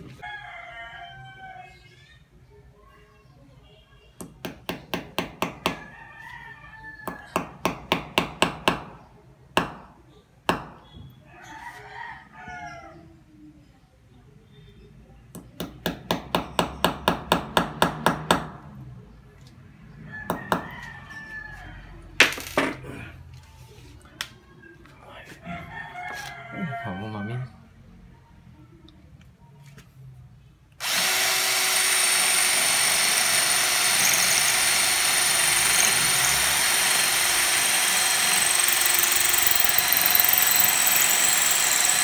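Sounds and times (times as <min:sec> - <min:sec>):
hammer tapping a nail: 0:04.2 - 0:05.8, 0:07.3 - 0:08.9, 0:15.4 - 0:18.6.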